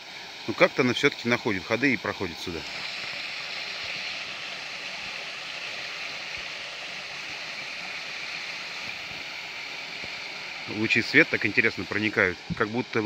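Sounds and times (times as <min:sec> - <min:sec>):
stream running over logs: 0:00.0 - 0:13.0.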